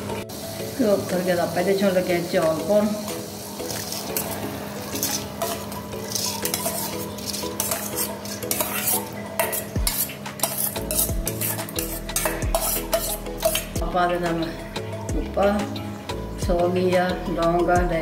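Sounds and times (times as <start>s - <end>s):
spoon scraping steel bowl: 3.7s - 13.8s.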